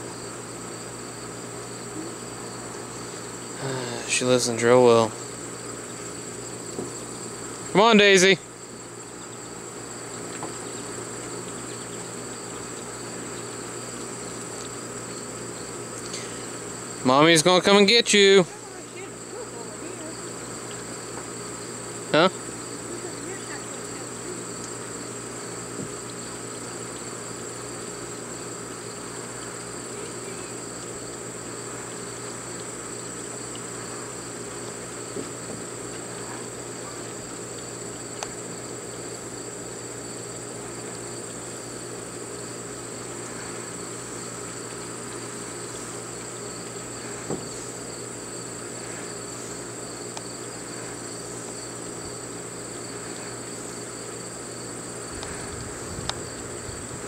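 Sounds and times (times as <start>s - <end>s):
insect chorus trilling: 0.0s - 57.0s
faint knocks: 47.2s - 47.6s.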